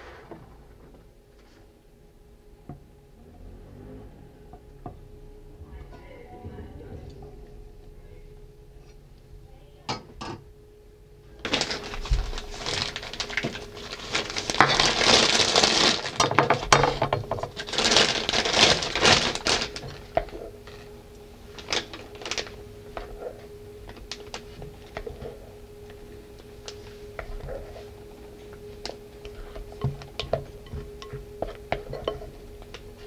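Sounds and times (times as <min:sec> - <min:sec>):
plastic piping bag crinkling: 0:11.4 - 0:33.0.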